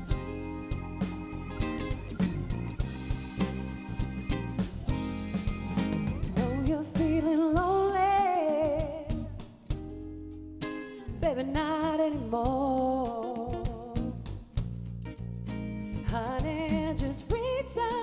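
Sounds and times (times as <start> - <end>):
soul band playing: 0.0 - 18.0
woman singing: 6.4 - 9.5, 10.9 - 14.3, 16.0 - 18.0.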